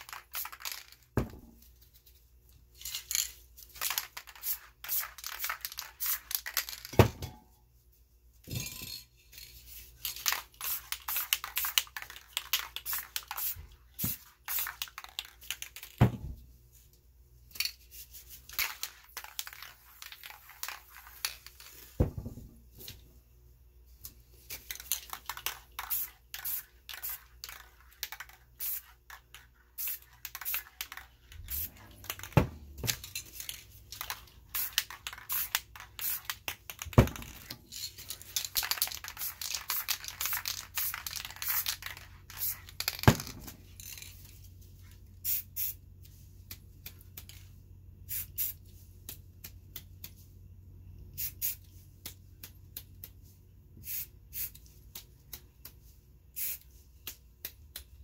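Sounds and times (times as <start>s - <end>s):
spray can hissing: 25.8s - 27.3s, 28.6s - 29.0s, 29.8s - 32.3s, 34.5s - 36.4s, 38.6s - 42.8s, 45.2s - 45.8s, 48.1s - 48.6s, 51.2s - 51.7s, 53.8s - 54.6s, 56.4s - 56.7s.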